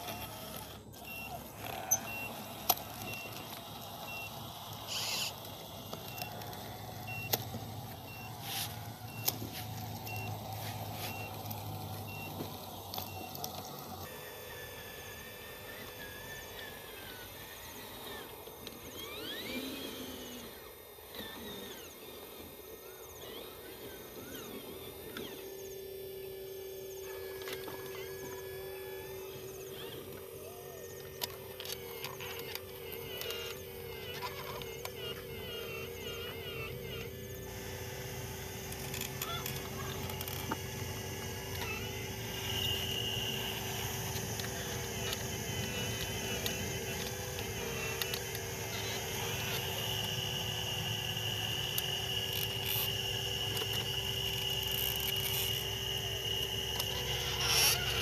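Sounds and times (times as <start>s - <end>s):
small electric motors whining: 0.0s - 58.0s.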